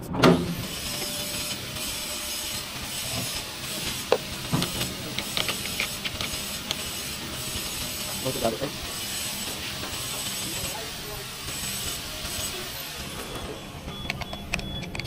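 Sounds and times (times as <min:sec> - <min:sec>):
spanner metallic clicks and taps: 0:04.0 - 0:06.9.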